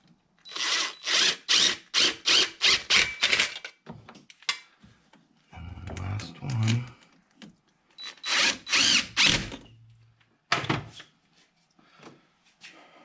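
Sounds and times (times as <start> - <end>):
cordless power tool bursts: 8.2 - 9.5.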